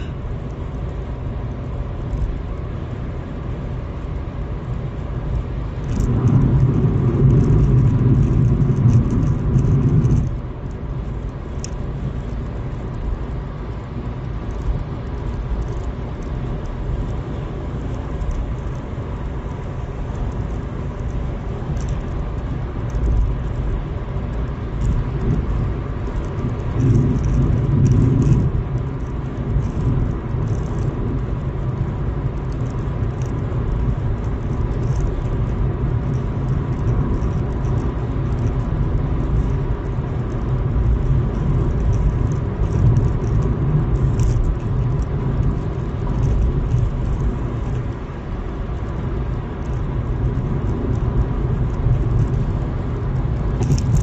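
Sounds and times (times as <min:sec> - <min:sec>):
car cabin road and engine rumble: 0:00.0 - 0:54.0.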